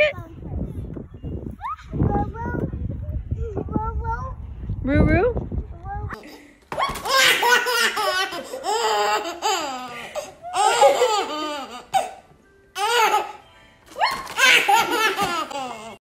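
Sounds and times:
baby laughing: 0:06.8 - 0:12.2, 0:12.8 - 0:13.4, 0:14.0 - 0:16.0.

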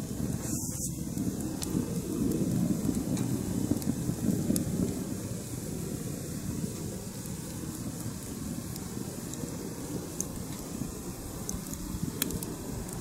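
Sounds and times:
wind rumbling on microphone: 0:00.0 - 0:13.0
wood fire crackling: 0:00.0 - 0:13.0.

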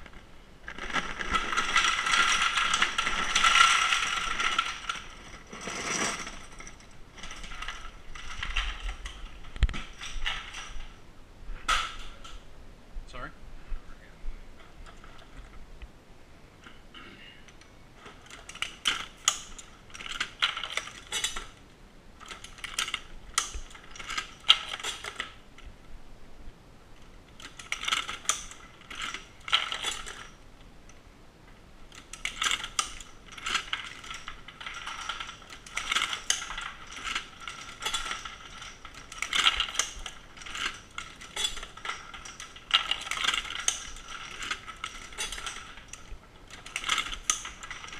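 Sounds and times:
reloading press metallic clicking: 0:27.4 - 0:30.4, 0:31.9 - 0:47.9.

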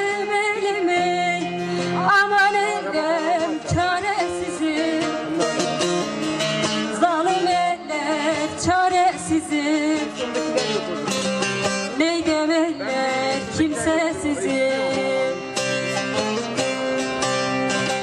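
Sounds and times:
person singing: 0:00.0 - 0:05.8, 0:06.8 - 0:10.9, 0:11.9 - 0:16.2
plucked string melody: 0:00.0 - 0:18.0.

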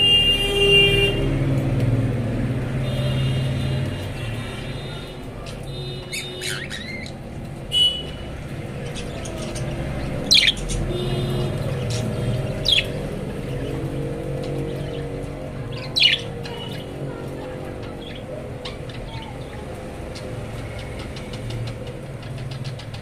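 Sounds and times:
budgerigars squawking: 0:06.1 - 0:07.2, 0:08.8 - 0:13.0.

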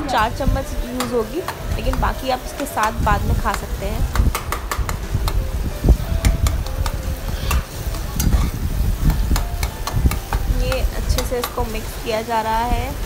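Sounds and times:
food sizzling in oil: 0:00.0 - 0:13.0
spatula scraping a pan: 0:07.2 - 0:10.5.

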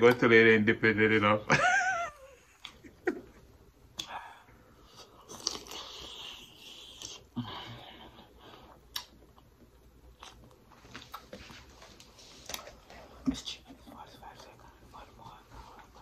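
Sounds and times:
person chewing: 0:04.8 - 0:07.4, 0:08.1 - 0:11.6
wet mouth noises: 0:05.0 - 0:07.4, 0:08.8 - 0:09.5.

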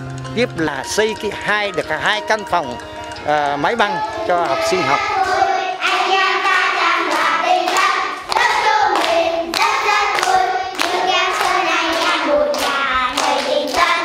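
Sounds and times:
hands clapping: 0:02.3 - 0:14.0
children singing: 0:03.3 - 0:14.0.

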